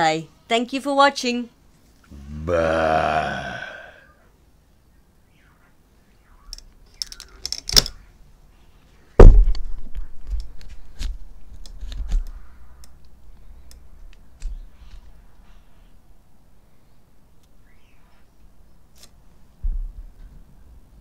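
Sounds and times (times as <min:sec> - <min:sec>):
loud thump: 0:09.2 - 0:09.6.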